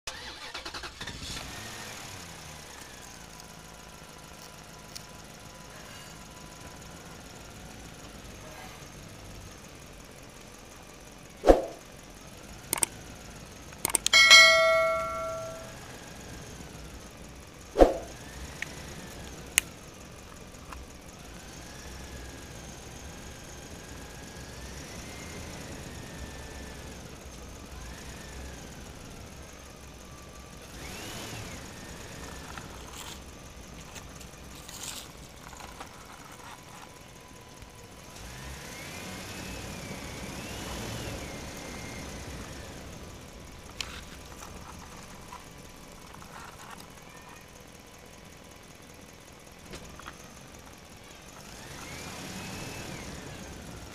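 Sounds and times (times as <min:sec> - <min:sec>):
faint outdoor background: 0:00.0 - 0:53.9
clicks: 0:12.7 - 0:13.0, 0:13.7 - 0:15.7
bright bell ding: 0:14.0 - 0:15.8.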